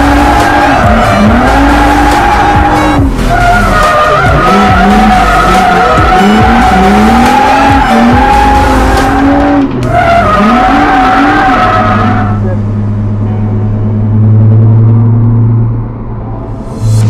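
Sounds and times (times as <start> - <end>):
tyres squealing: 0.0 - 12.6
car engine revving: 0.0 - 17.0.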